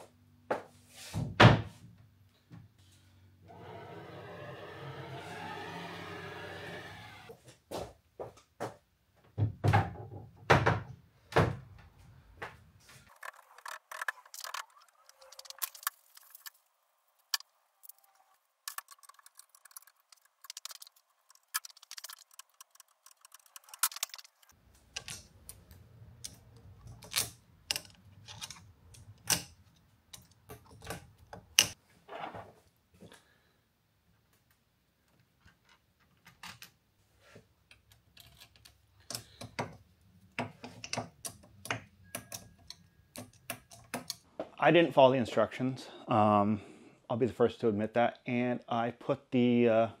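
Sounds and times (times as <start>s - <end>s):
metal parts knocking and clicking: 13.1s - 16.5s, 17.8s - 25.6s, 26.2s - 31.8s, 37.7s - 44.3s.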